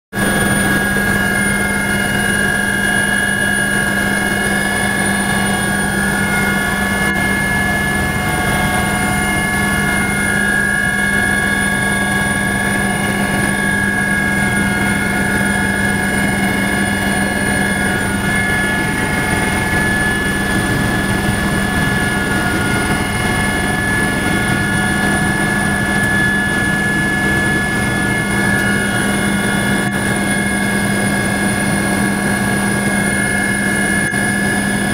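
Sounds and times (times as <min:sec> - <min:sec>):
helicopter cabin hum: 0:00.2 - 0:34.9
high-pitched whines: 0:00.2 - 0:34.9.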